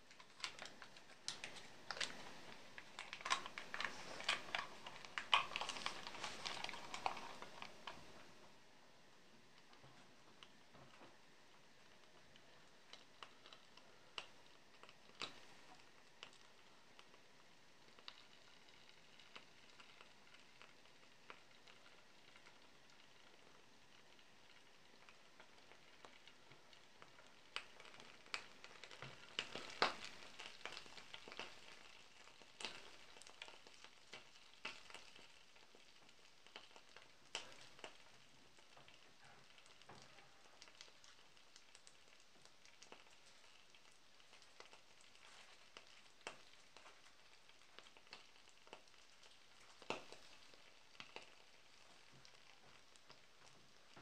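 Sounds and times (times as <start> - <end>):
butter sizzling and popping in a pan: 0.0 - 8.6, 9.5 - 54.0.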